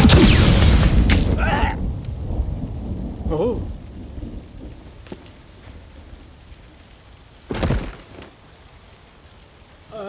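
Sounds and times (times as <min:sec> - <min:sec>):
loud crash: 0:00.0 - 0:01.5.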